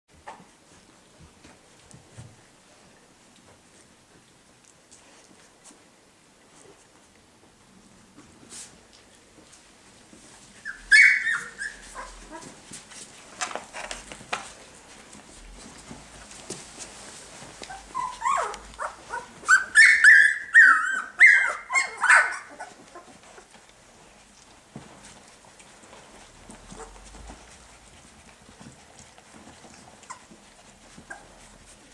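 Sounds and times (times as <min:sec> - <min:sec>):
puppies yelping: 0:10.6 - 0:12.5, 0:17.6 - 0:23.5.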